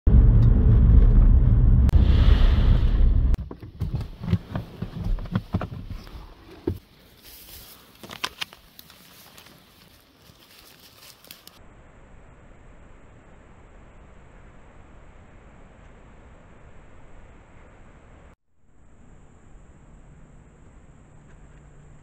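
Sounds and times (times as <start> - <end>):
car rumbling on gravel road: 0.1 - 6.9.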